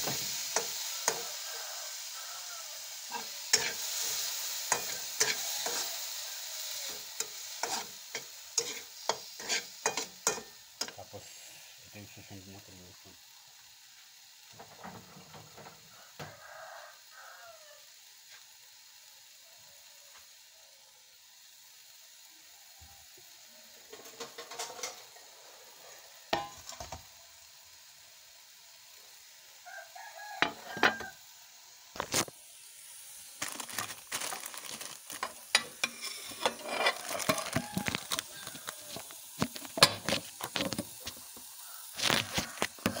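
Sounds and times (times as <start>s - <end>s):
frying sizzle: 0.0s - 43.0s
metal spatula scraping a wok: 0.2s - 1.4s, 2.9s - 11.1s, 24.0s - 25.2s, 26.4s - 26.9s, 30.4s - 31.1s, 33.7s - 41.3s, 42.0s - 43.0s.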